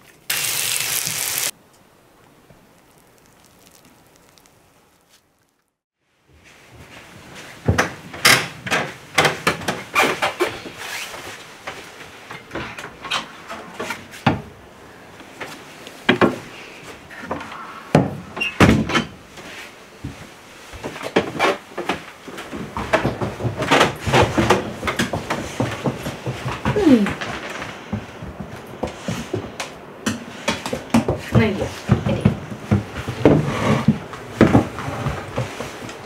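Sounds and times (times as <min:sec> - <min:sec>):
rustling of soft fabric: 0:02.8 - 0:07.6
footsteps on wooden stairs: 0:20.0 - 0:36.0.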